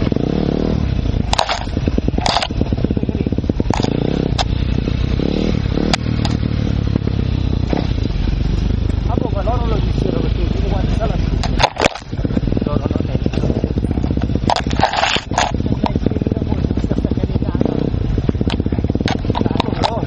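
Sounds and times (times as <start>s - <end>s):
motorcycle engine revving: 0.0s - 20.0s
sharp knocks and clatters: 11.3s - 16.0s, 18.4s - 20.0s.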